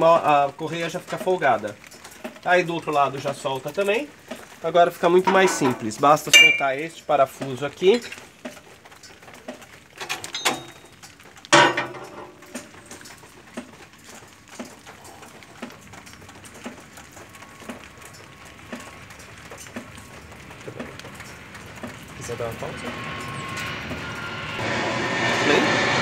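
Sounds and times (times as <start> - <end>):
loud ringing clank: 5.3 - 6.8, 10.3 - 10.9
wrench clinking on metal: 5.3 - 6.8, 10.1 - 10.9
faint regular ticks: 12.4 - 24.3.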